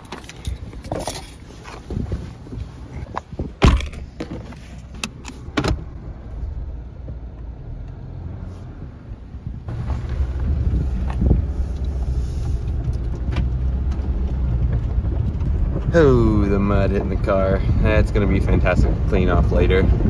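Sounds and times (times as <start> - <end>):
car engine and tyres rumbling: 0.0 - 20.0
sharp knocks and rattles: 3.2 - 5.8.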